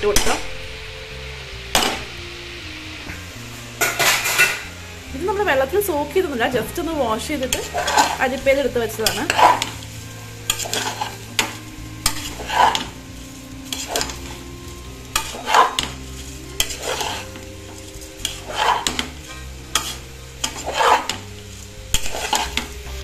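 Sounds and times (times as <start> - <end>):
ladle scraping pressure cooker: 7.5 - 8.3, 9.0 - 9.8, 10.5 - 13.0, 15.1 - 15.9, 16.6 - 17.4, 18.2 - 21.2, 21.9 - 23.0.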